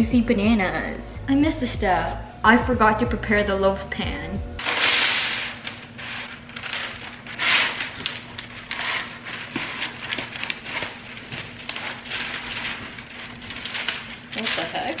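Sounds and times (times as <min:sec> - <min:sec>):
paper rustling and crinkling: 0:04.6 - 0:15.0.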